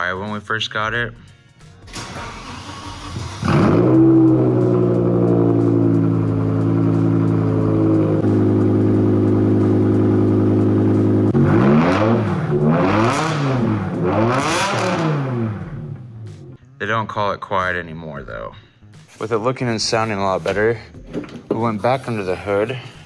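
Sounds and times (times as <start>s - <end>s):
car engine idling and revving: 2.0s - 16.6s.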